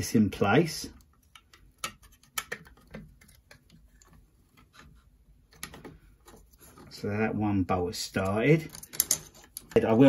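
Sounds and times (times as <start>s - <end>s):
metal clicks and taps: 1.0s - 4.2s, 8.2s - 9.8s.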